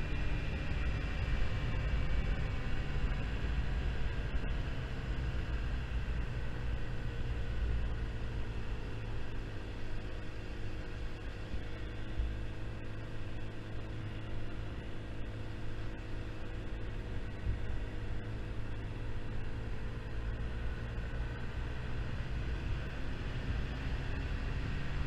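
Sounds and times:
scooter engine humming: 0:00.0 - 0:25.0
wind and road noise: 0:00.0 - 0:25.0.

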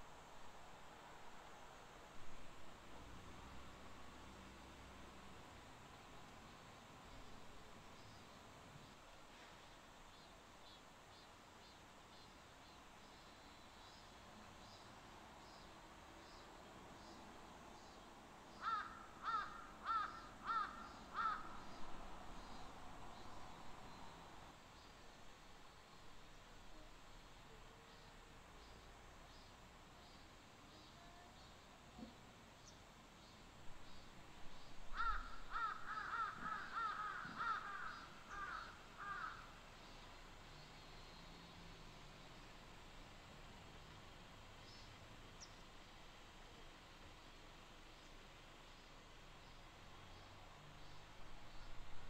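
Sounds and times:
faint forest ambience hiss: 0:00.0 - 0:52.0
crow cawing: 0:18.6 - 0:21.8, 0:34.9 - 0:39.5.

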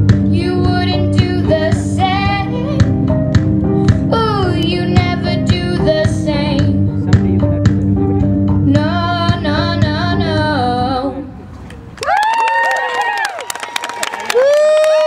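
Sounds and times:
instrumental backing music: 0:00.0 - 0:11.4
girl singing into a microphone: 0:00.2 - 0:03.1, 0:03.9 - 0:06.9, 0:08.7 - 0:11.3.

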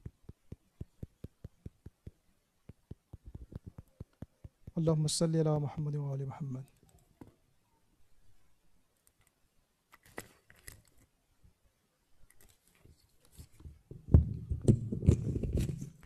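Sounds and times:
microphone handling thumps: 0:00.0 - 0:04.9, 0:13.9 - 0:16.0
faint clicks and rustles: 0:00.0 - 0:05.8, 0:08.9 - 0:11.2, 0:12.2 - 0:16.0.

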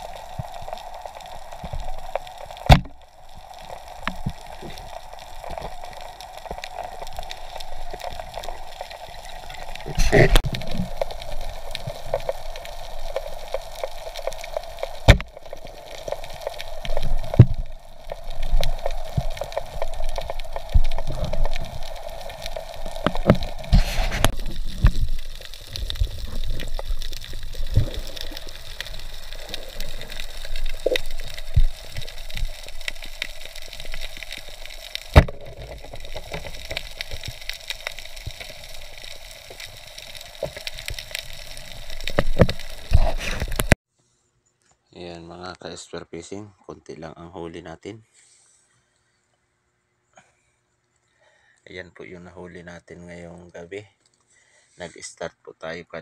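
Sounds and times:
water moving and bubbling: 0:00.0 - 0:43.8.

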